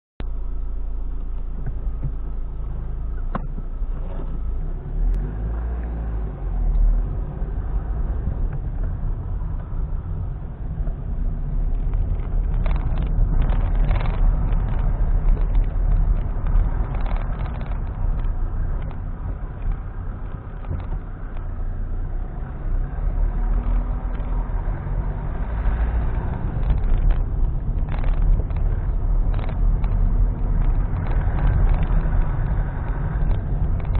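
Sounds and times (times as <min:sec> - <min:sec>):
car engine and road rumble: 0:00.2 - 0:33.9
car knocks and rattles: 0:03.2 - 0:04.4, 0:07.5 - 0:22.1, 0:23.5 - 0:33.9.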